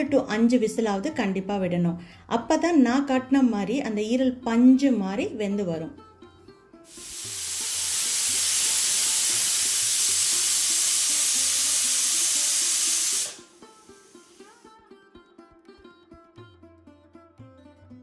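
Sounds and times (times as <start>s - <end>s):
pressure cooker whistle hiss: 6.9s - 14.7s.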